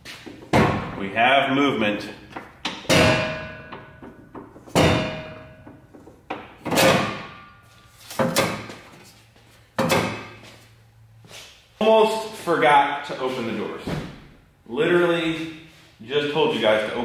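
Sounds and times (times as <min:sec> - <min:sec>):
heavy metallic knocks ringing: 0:02.6 - 0:07.5.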